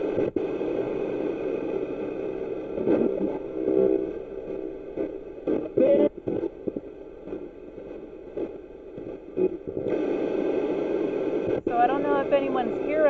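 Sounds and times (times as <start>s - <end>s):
choppy radio static: 0.0s - 13.0s
snatches of radio music: 0.0s - 13.0s
snatches of broadcast voice: 5.5s - 6.5s, 11.5s - 13.0s.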